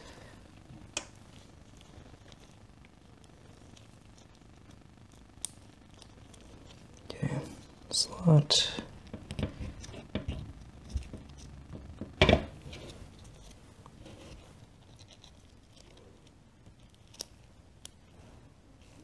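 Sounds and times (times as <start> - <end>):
small parts scratching and clicking: 9.0 - 11.8, 12.6 - 18.2.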